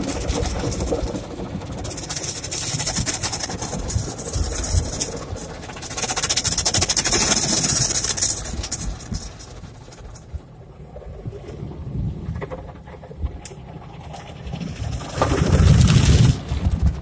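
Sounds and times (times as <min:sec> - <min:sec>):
car wash brushes scrubbing: 0:00.0 - 0:10.3
low rumble: 0:00.0 - 0:17.0.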